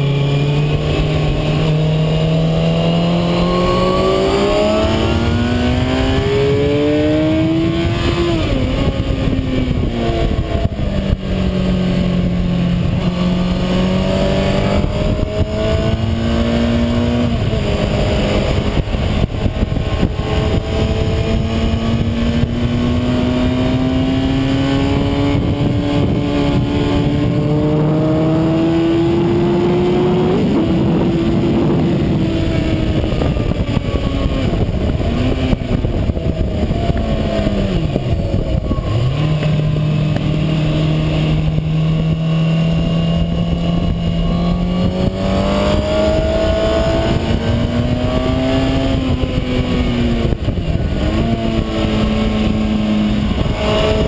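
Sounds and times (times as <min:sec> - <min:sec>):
motorcycle engine revving: 0:00.0 - 0:54.0
wind rush: 0:00.0 - 0:54.0.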